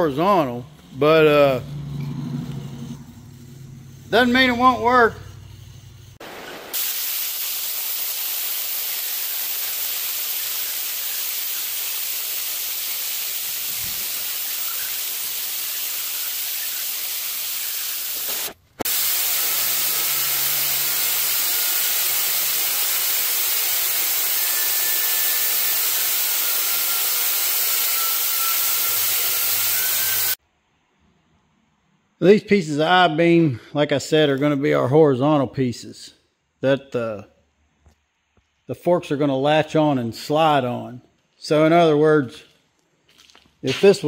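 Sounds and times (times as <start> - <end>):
cutting torch flame hissing: 0.6 - 30.4.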